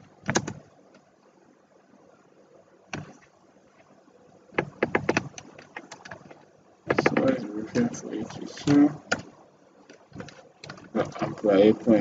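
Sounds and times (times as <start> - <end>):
keyboard key clicks: 0.2 - 0.6, 4.6 - 7.9.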